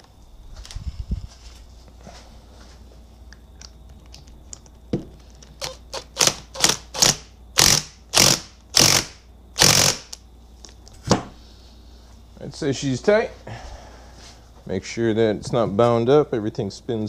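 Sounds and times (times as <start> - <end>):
impact wrench rattling whirr: 5.6 - 10.2.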